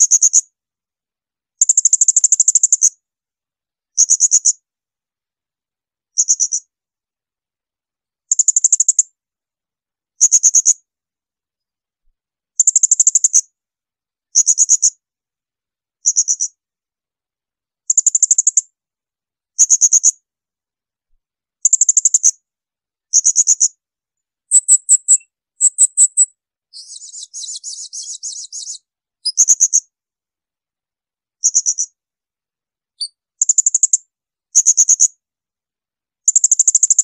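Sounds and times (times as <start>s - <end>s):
parrot shrill calls: 24.5s - 28.8s.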